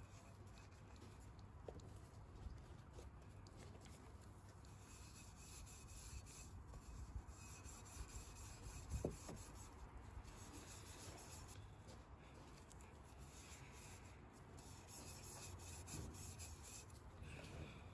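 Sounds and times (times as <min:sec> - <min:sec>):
cloth rubbing on metal exhaust: 0:04.8 - 0:11.6, 0:13.2 - 0:17.0.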